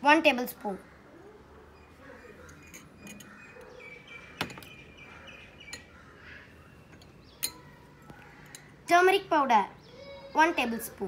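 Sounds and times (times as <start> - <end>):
faint bird chirps: 0.8 - 8.9.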